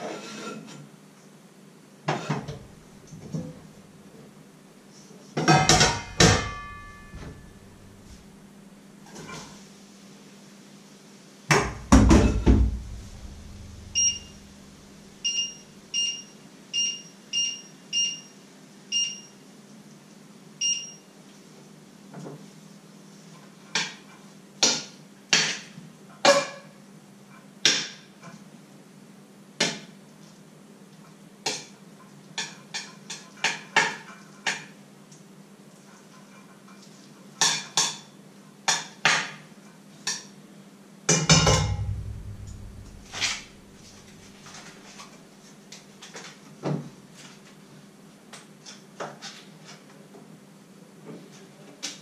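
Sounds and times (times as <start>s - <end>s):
metal spoon clinking on pot: 5.5s - 7.8s
metal cookware clanking: 5.5s - 8.3s, 11.6s - 15.2s, 41.3s - 44.4s
steady low hum: 5.7s - 8.8s, 11.6s - 15.9s, 41.4s - 44.7s
appliance electronic beeps: 12.3s - 16.2s.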